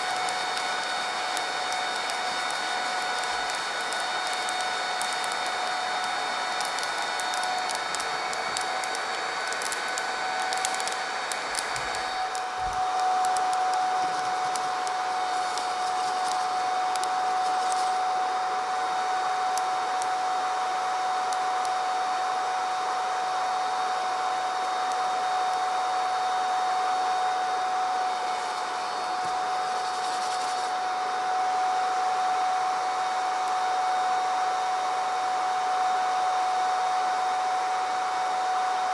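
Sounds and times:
sharp crackles: 0.0 - 18.2, 29.2 - 30.7
electric fan whine: 0.0 - 38.9.

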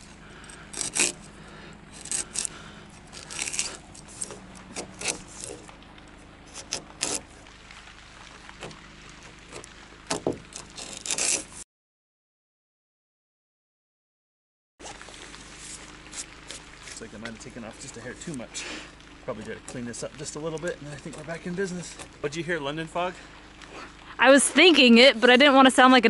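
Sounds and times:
chisel scraping wood: 0.0 - 5.8, 6.5 - 7.3, 9.5 - 11.6.

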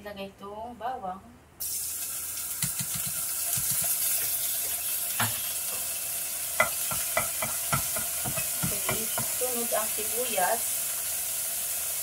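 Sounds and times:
garlic sizzling in frying pan: 1.6 - 12.0
spatula knocking against pan: 6.6 - 9.4.

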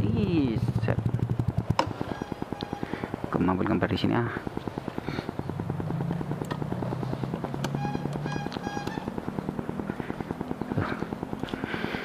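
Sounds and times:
scooter engine idling: 0.0 - 12.0
short high-pitched beeps: 2.0 - 3.1.

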